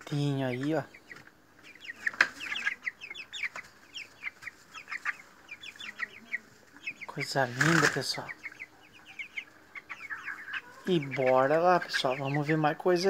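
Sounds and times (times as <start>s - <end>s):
chicks peeping: 0.0s - 13.0s.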